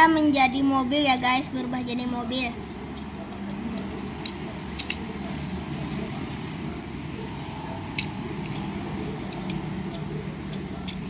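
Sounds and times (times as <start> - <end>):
low background hum: 0.0 - 11.0
plastic parts clicking into place: 3.0 - 5.0.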